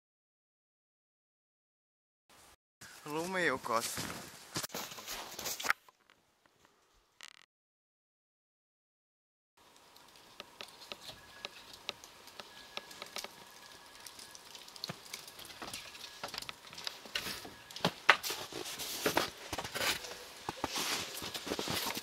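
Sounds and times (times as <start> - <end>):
melting snow dripping: 9.6 - 22.0.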